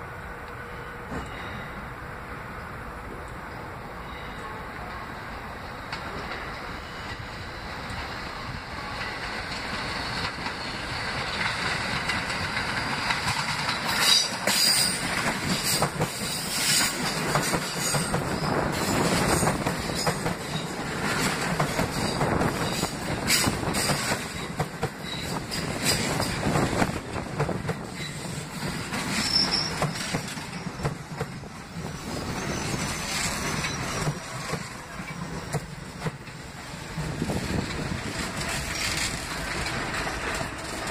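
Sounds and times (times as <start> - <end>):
subway train passing: 0.0 - 40.9
wheels clacking over rail joints: 8.8 - 40.9
high-pitched wheel squeals: 27.9 - 30.3, 32.1 - 34.1.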